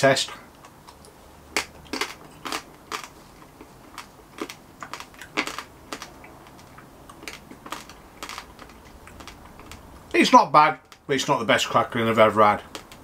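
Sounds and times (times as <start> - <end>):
chewing crisp crackling: 0.5 - 10.2, 12.6 - 13.0.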